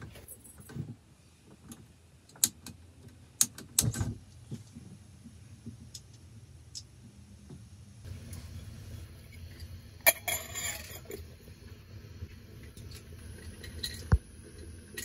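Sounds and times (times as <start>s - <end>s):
gas burner hiss: 8.0s - 15.0s.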